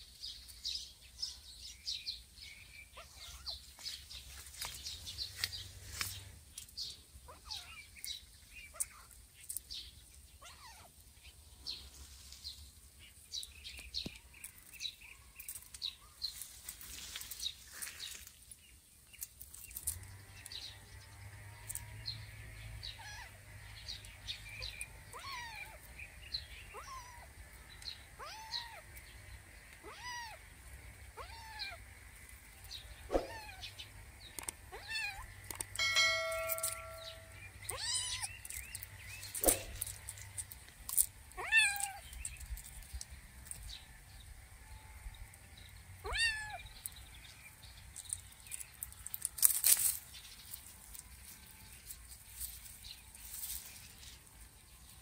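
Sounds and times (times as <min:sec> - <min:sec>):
faint birds chirping: 0:00.0 - 0:55.0
kitten meowing: 0:25.1 - 0:25.8, 0:28.2 - 0:28.8, 0:29.8 - 0:30.4, 0:31.2 - 0:31.8, 0:33.2 - 0:33.6, 0:37.7 - 0:38.3, 0:46.0 - 0:46.6.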